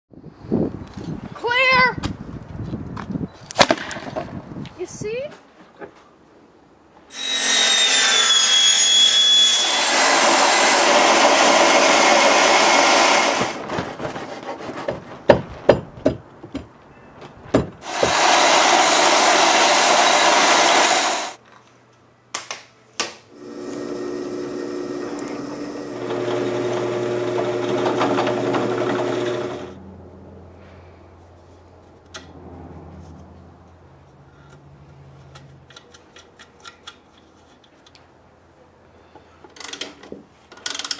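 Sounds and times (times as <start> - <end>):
drill press drilling: 7.1 - 13.6, 17.8 - 21.4, 23.3 - 29.7
power saw cutting plastic pipe: 7.1 - 15.0, 17.8 - 21.4, 23.3 - 29.8.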